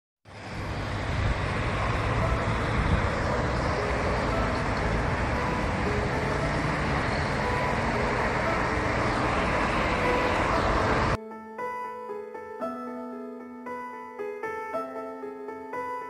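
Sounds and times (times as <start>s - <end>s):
road traffic rumble and tyre hiss: 0.3s - 11.2s.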